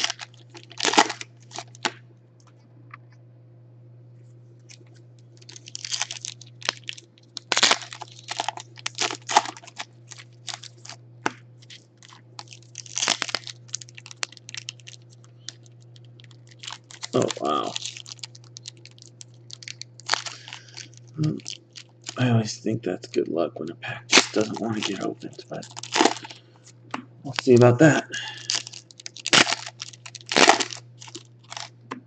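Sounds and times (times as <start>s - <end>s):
foil wrapper crinkling and tearing: 0.0s - 2.0s, 4.7s - 11.0s, 11.6s - 22.2s, 24.1s - 26.7s, 27.3s - 27.6s, 28.2s - 31.8s
steady low hum: 0.0s - 32.0s.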